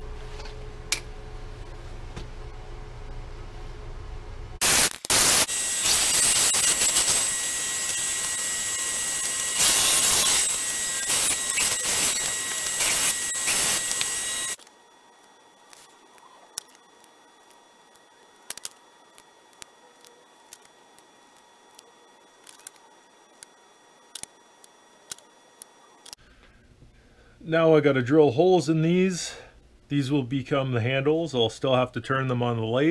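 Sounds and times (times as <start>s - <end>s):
low steady hum: 0.0s - 4.6s, 5.6s - 32.9s
bandsaw cutting wood: 5.2s - 14.6s.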